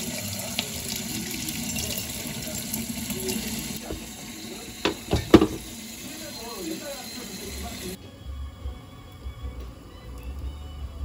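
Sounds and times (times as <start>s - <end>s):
faucet water splashing: 0.0s - 8.0s
bones knocking in steel bowl: 4.8s - 5.7s.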